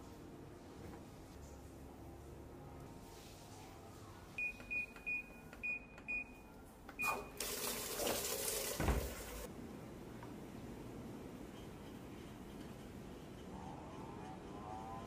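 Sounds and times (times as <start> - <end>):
washing machine beeping: 4.3 - 9.5
rushing water filling machine: 7.0 - 9.5.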